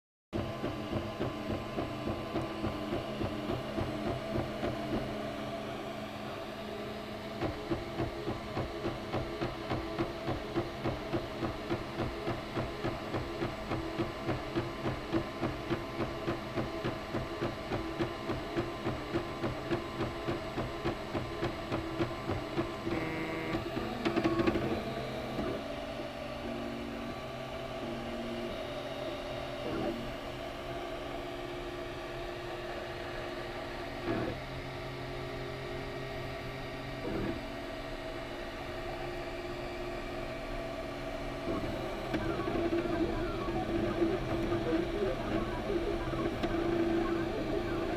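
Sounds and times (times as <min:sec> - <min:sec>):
steady pulsing: 0:41.4 - 0:47.9.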